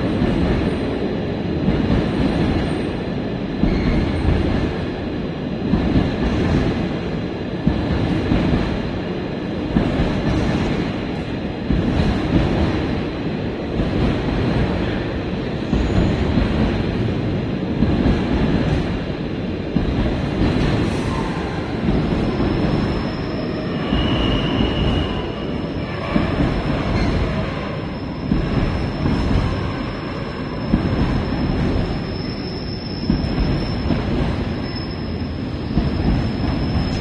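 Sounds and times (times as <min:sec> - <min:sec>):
freight train wheels rumbling on rail: 0:00.0 - 0:37.0
high wheel squeal: 0:22.5 - 0:25.8, 0:26.9 - 0:37.0.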